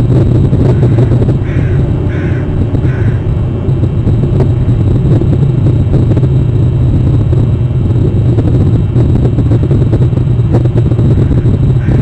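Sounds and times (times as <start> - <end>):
loud low rumble: 0.0 - 12.0
noisy hiss: 0.0 - 12.0.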